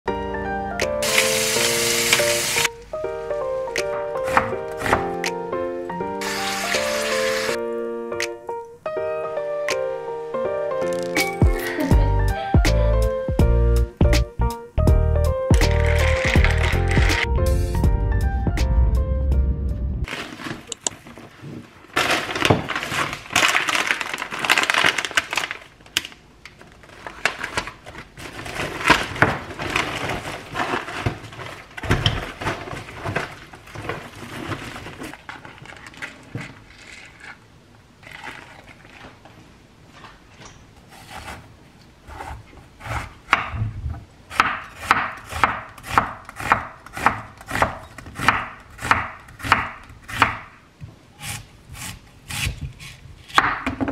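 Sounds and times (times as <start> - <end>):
bag and packaging rustling: 15.7 - 17.3, 20.1 - 40.5
knife chopping on cutting board: 44.4 - 50.5.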